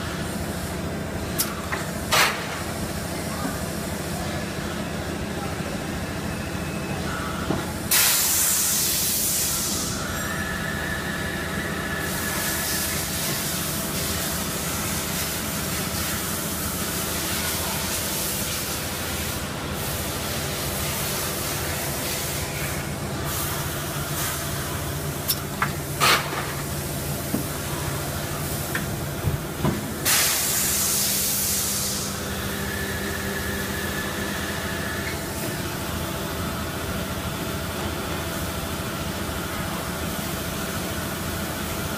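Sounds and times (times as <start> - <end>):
loud bursts of hiss: 7.9 - 10.1, 30.0 - 33.2.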